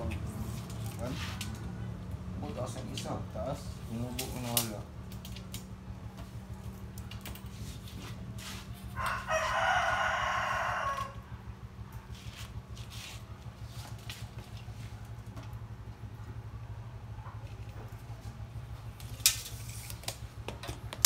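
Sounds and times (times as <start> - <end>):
steady low hum: 0.0 - 21.0
rooster crowing: 8.8 - 11.6.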